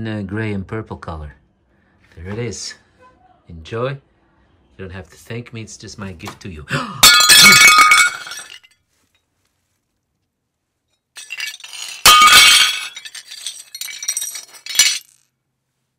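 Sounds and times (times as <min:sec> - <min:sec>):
glass pieces tinkling: 0:07.0 - 0:08.7, 0:11.2 - 0:15.2
glass shattering: 0:07.0 - 0:08.7, 0:11.2 - 0:15.2.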